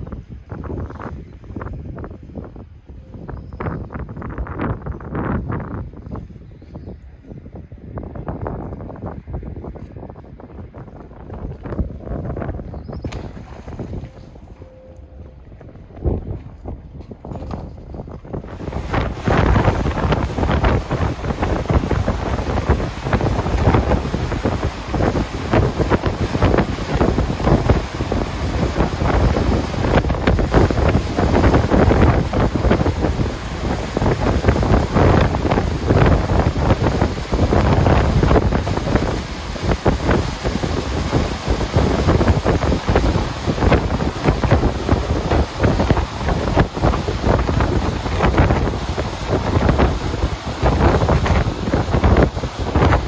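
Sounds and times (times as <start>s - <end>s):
wind buffeting microphone: 0.0s - 53.0s
boat rushing through water: 18.4s - 53.0s.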